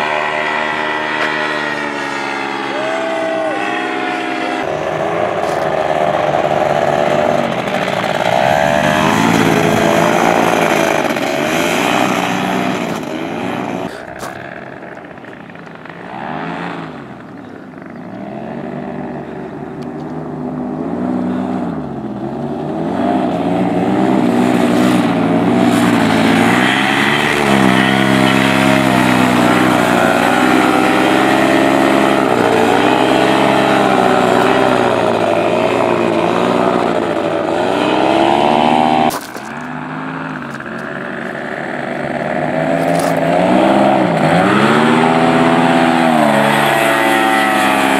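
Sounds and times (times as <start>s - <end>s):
paramotor engine and propeller: 0.0s - 47.9s.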